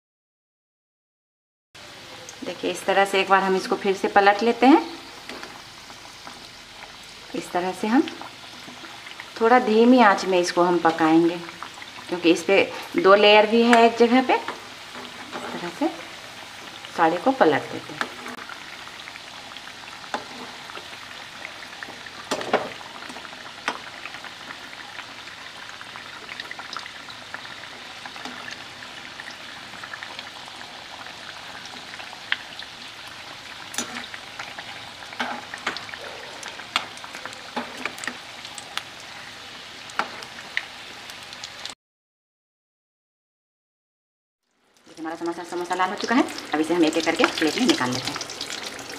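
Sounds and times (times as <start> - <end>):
food sizzling in hot oil: 1.8 - 41.8, 44.4 - 48.9.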